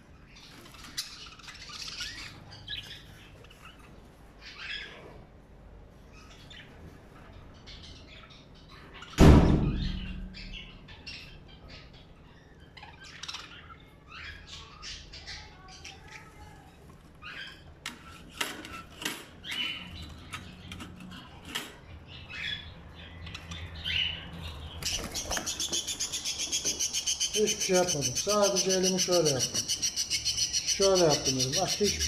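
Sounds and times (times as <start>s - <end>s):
budgerigars chirping and squawking: 0.2s - 5.2s, 6.1s - 16.4s, 17.2s - 32.0s
bird wings flapping: 24.8s - 25.9s.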